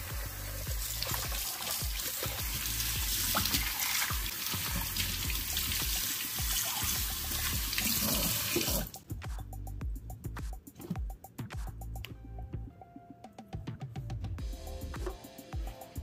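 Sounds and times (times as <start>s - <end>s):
background music: 0.0s - 16.0s
tap running into a metal sink: 1.0s - 7.0s.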